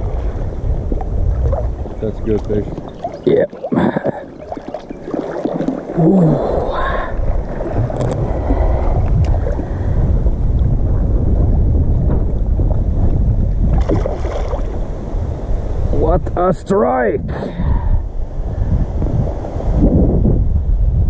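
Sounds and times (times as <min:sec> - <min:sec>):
water sloshing: 0:00.0 - 0:10.7, 0:12.1 - 0:14.8
wind rumble on microphone: 0:00.0 - 0:21.0
fish splashing at surface: 0:02.7 - 0:06.5.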